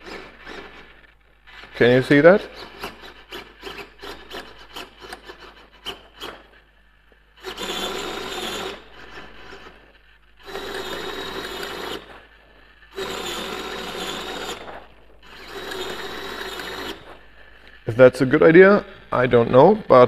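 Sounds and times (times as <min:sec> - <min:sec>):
servo geared whine: 0:07.4 - 0:19.7.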